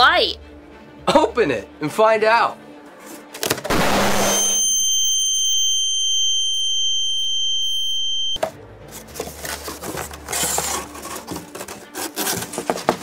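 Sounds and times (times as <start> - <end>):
high-pitched ringing tone: 3.8 - 8.4
cardboard box crinkling: 9.0 - 13.0.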